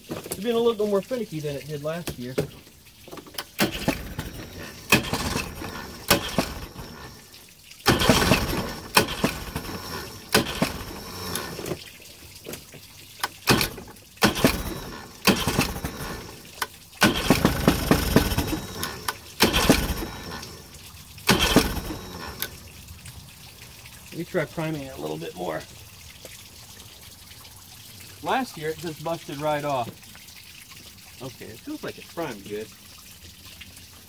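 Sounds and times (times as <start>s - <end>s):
water running from hose: 0.0s - 34.0s
outboard motor cranking: 2.5s - 22.9s.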